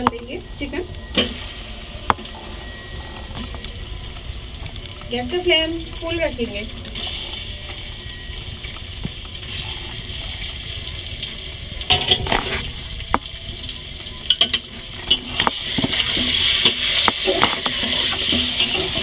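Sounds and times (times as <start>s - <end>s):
chicken sizzling in hot oil: 5.1s - 19.0s.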